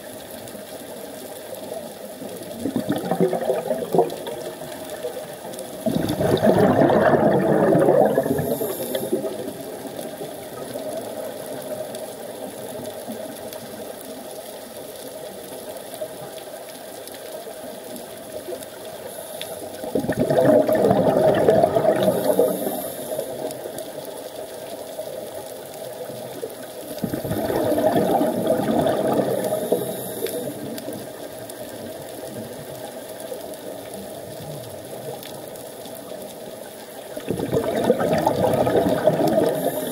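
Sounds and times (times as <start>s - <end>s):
underwater bubbles rushing: 0.0s - 39.9s.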